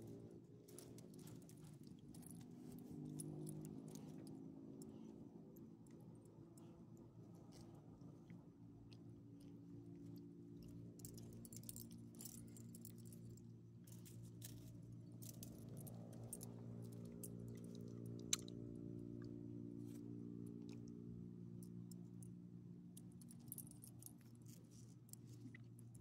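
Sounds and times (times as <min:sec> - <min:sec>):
low hum: 0:00.0 - 0:26.0
leash clasp jingling: 0:00.8 - 0:05.0, 0:10.6 - 0:18.5, 0:23.0 - 0:24.6.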